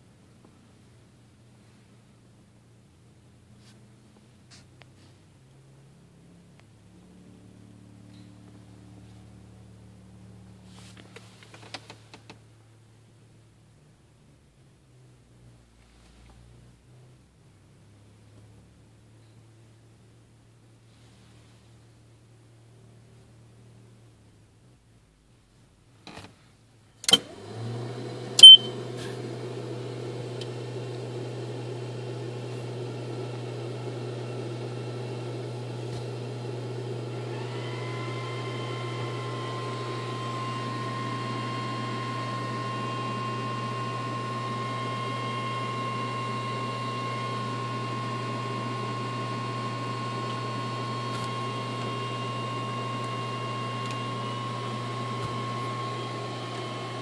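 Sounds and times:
short beep: 28.4 - 28.8.

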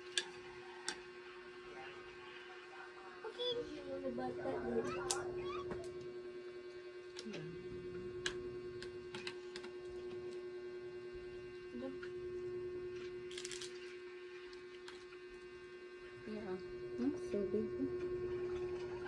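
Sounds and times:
low electrical hum: 0.0 - 19.0
crab shell cracking: 13.2 - 13.9.

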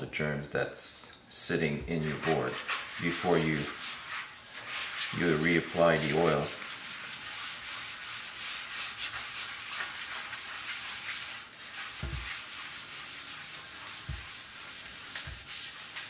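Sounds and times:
sponge scrubbing salt on wood: 1.9 - 16.0
short dull thumps: 12.0 - 12.4.

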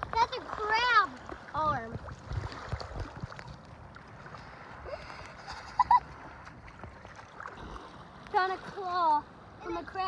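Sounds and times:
small waves lapping: 0.0 - 10.0
wind on microphone: 1.4 - 7.1.

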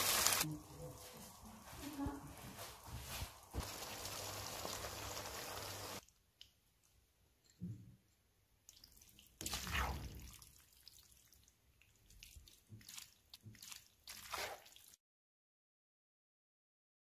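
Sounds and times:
pasta stirred in frying pan: 0.0 - 6.0.

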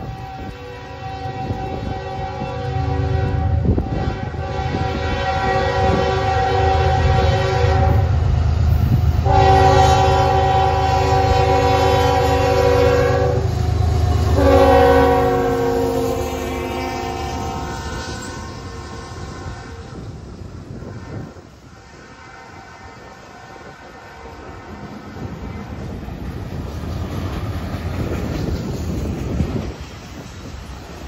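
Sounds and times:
locomotive horn blasts: 0.0 - 8.2, 9.2 - 25.3.

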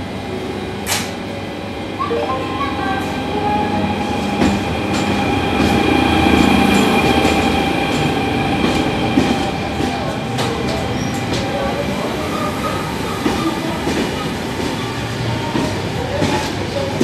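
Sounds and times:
electric locomotive whine: 0.0 - 16.2.

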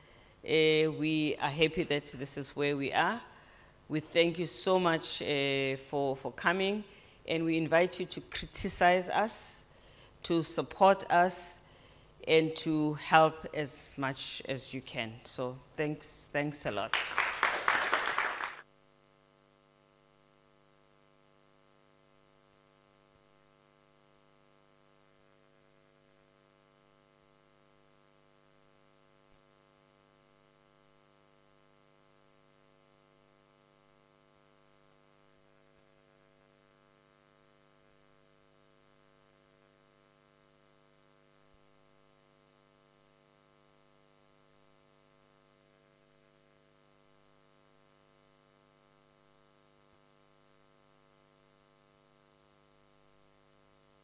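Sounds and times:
faint mains hum with hiss: 0.0 - 54.0.

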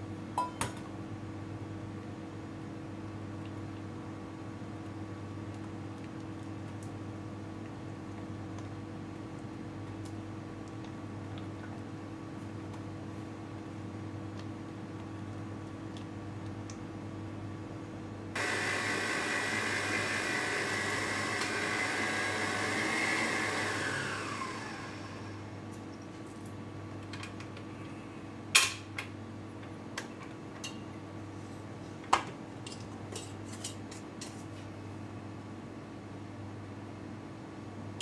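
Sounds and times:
stand mixer whisking: 18.4 - 25.3.

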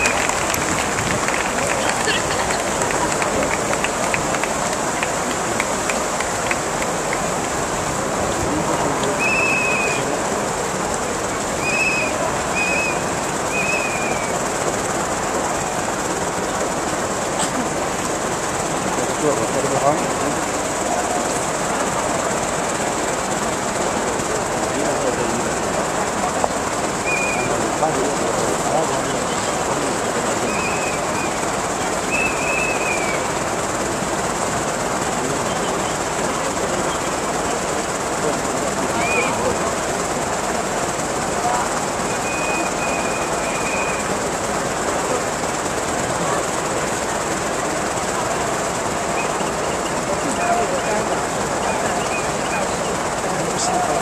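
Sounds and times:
crowd hubbub: 0.0 - 54.0
trilled whistle blasts: 9.2 - 10.1, 11.6 - 14.5, 27.0 - 27.6, 30.4 - 31.4, 32.0 - 33.4, 38.9 - 39.4, 42.0 - 44.2.

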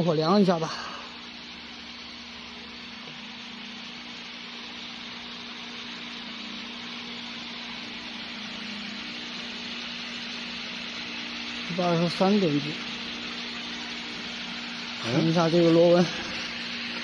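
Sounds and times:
machinery low hum: 0.0 - 17.0.

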